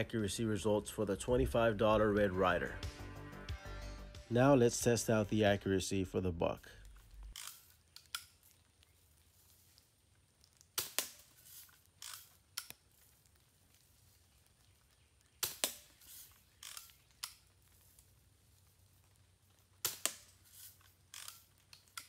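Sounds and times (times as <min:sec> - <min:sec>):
air rifle shot snap: 0:15.4 - 0:15.8.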